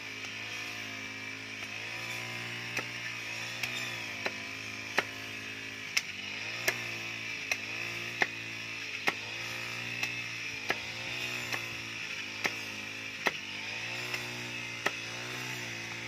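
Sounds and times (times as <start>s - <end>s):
knife chopping wood: 2.6s - 5.2s, 5.9s - 16.0s.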